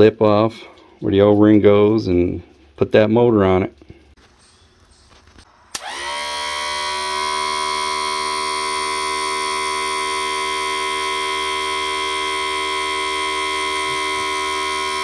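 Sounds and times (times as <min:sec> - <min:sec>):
electric motor and pump whine: 0:05.4 - 0:15.0.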